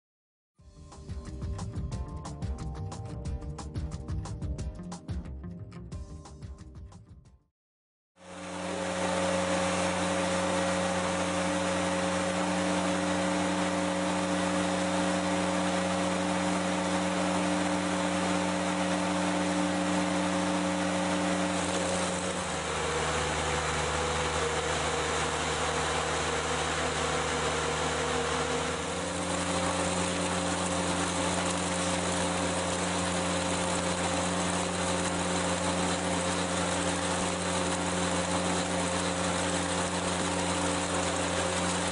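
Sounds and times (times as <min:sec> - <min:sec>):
mixer pump humming: 0:08.2 - 0:41.9.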